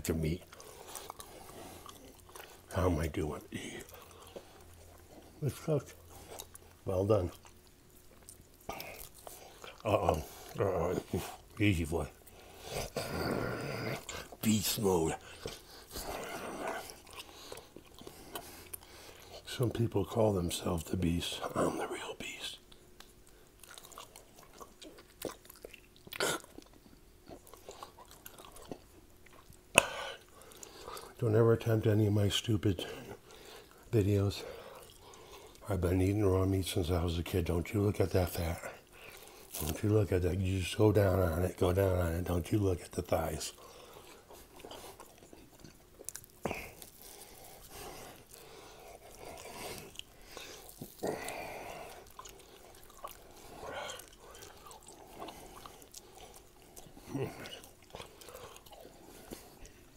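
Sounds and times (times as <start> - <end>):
wet chewing clicks: 0.2 - 2.7, 3.4 - 14.6, 15.2 - 19.5, 22.7 - 31.2, 42.9 - 59.9.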